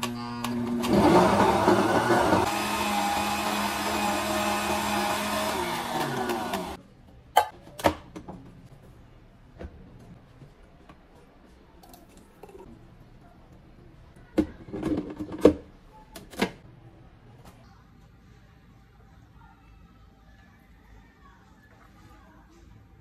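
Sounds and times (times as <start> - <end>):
blender motor stopping: 0.5 - 6.8.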